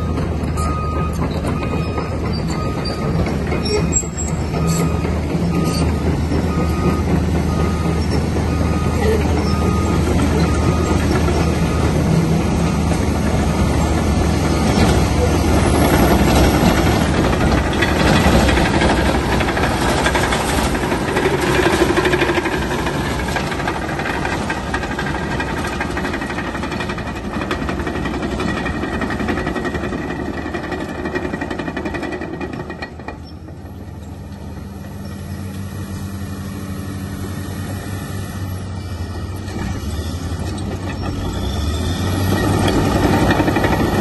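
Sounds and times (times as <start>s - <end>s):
bulldozer diesel engine: 0.0s - 44.0s
steel tracks clattering: 0.0s - 44.0s.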